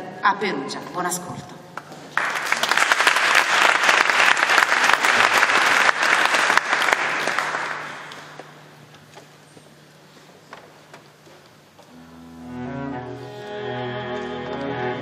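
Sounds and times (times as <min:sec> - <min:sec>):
audience applauding: 0:02.1 - 0:08.4.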